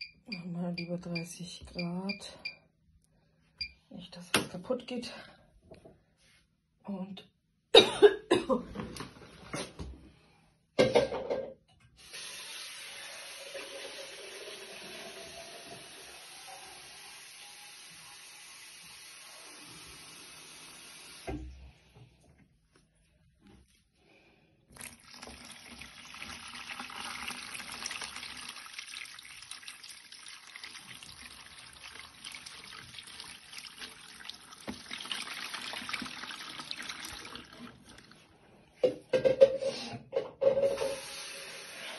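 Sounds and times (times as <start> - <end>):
water rushing into washing machine: 12.0 - 21.5, 24.7 - 38.4, 40.5 - 41.9
splashing trickling water: 24.7 - 38.3.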